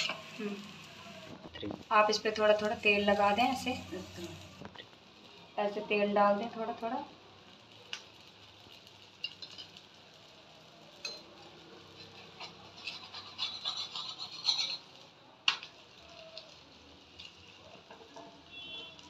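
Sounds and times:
metal spatula scraping on pan: 0.0 - 1.3, 2.0 - 4.5, 8.8 - 9.9, 10.9 - 15.2.

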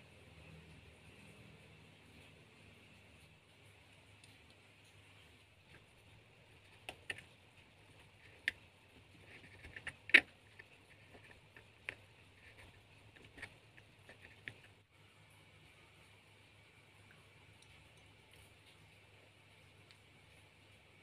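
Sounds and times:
knife scraping plastic: 6.5 - 14.8.

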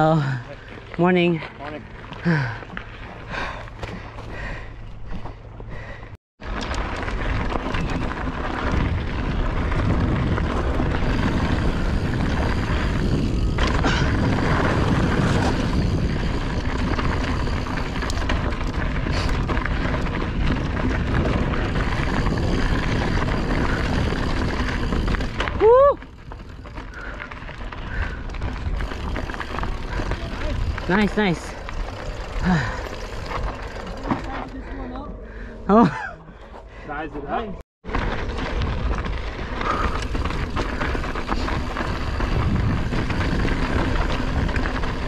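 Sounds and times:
bike tyre and trail noise: 0.0 - 45.0
wind rushing over microphone: 6.4 - 26.8, 37.9 - 45.0.

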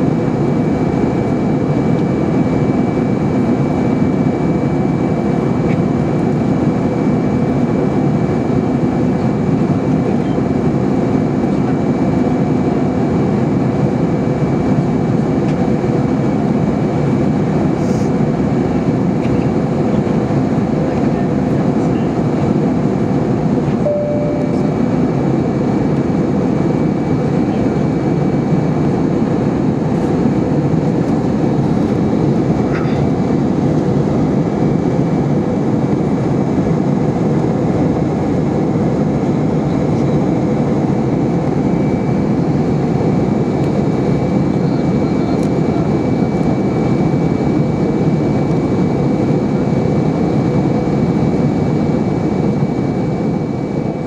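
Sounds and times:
aircraft cabin engine rumble: 0.0 - 54.0
faint high whine: 23.7 - 25.5
short tone: 23.8 - 24.9.

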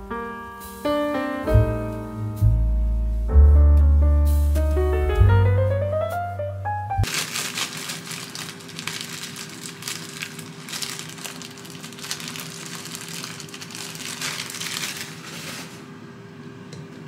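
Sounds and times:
plastic packaging crinkling: 7.0 - 15.8.

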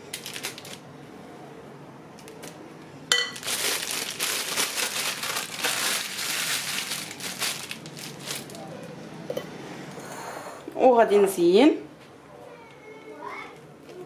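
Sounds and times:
plastic piping bag crinkling: 0.0 - 0.8, 2.2 - 8.7.

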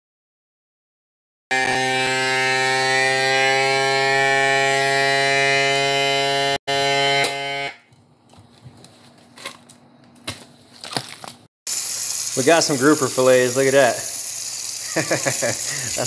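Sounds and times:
vacuum sealer pump humming: 11.7 - 16.0.

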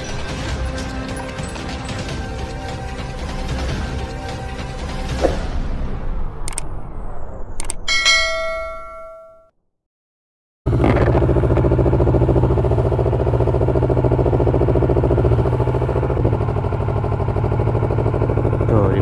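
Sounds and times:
logo chime ringing tones: 7.9 - 9.5
motorcycle engine idling: 10.7 - 19.0.

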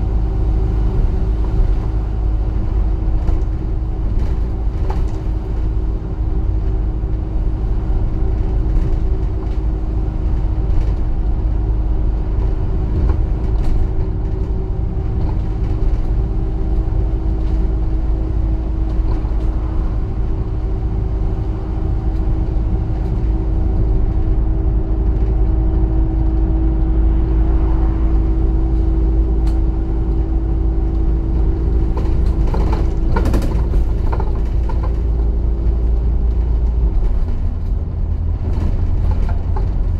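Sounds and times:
bus engine hum: 0.0 - 39.9
deep road rumble: 0.0 - 39.9
rattles and knocks: 31.4 - 39.9.

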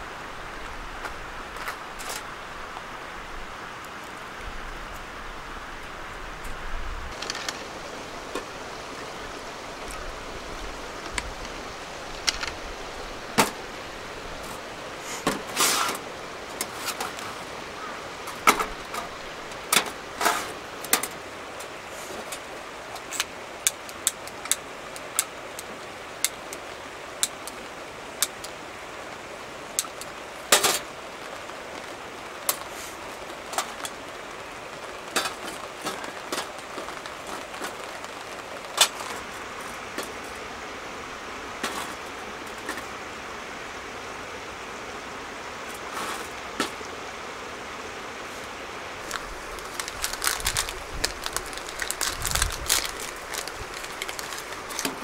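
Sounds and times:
campfire crackling: 0.0 - 55.0
sharp pops and snaps of fire: 7.1 - 8.6, 18.3 - 26.6, 49.0 - 55.0.

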